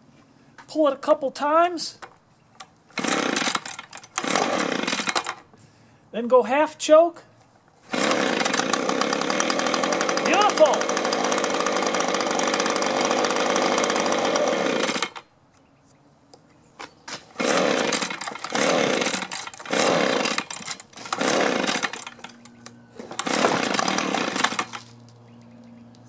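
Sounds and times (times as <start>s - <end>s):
engine pull-starting: 3.0s - 5.4s, 17.4s - 24.9s
leaf blower engine running: 3.0s - 5.4s, 7.9s - 15.2s, 17.3s - 24.9s.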